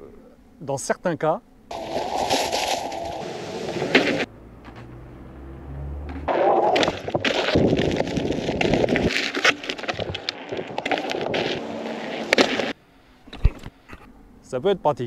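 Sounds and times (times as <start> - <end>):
low hum: 1.4 - 14.5
tyre crunching on gravel: 1.7 - 5.1, 6.3 - 12.8.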